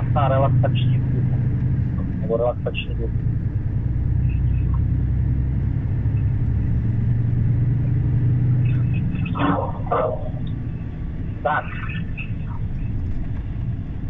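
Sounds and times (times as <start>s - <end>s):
diesel truck engine drone: 0.0s - 14.0s.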